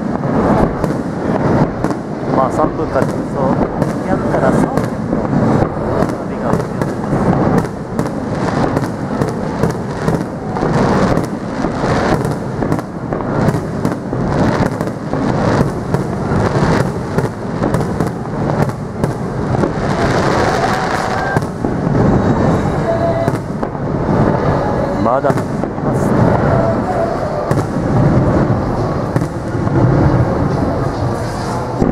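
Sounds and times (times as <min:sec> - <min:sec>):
firework booms: 0:00.0 - 0:31.9
firework crackling: 0:00.0 - 0:31.9.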